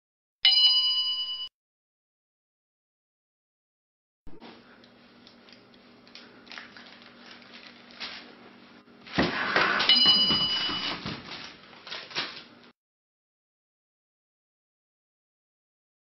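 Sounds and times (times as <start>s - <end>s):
loud clatter and scuffle: 9.1s - 12.5s
short bell-like ding: 9.9s - 10.9s.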